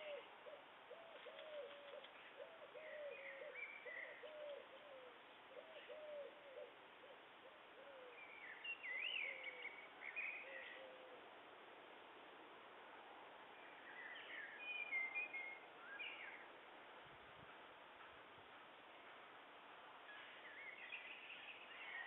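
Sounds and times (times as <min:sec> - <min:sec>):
dove cooing: 0:00.0 - 0:08.2, 0:09.1 - 0:09.7, 0:10.4 - 0:11.3
small birds chirping: 0:00.0 - 0:11.0, 0:13.5 - 0:16.6, 0:20.0 - 0:22.0.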